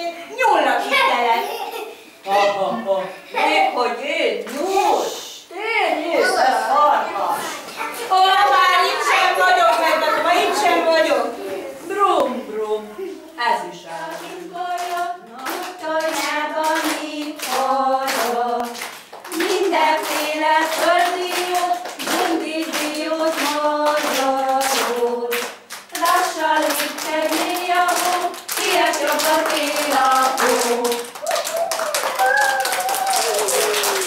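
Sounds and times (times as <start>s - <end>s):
children singing: 13.8s - 33.2s
hands clapping in time: 21.3s - 34.0s.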